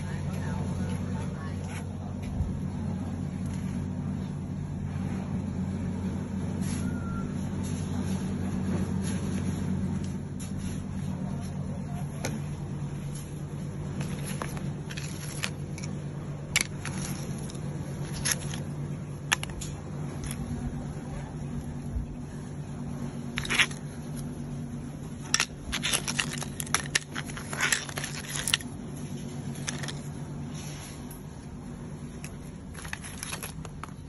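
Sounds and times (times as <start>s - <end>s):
steady low hum: 0.0s - 34.0s
cuttlebones clicking and scraping: 13.9s - 20.8s, 25.2s - 30.2s, 32.1s - 34.0s.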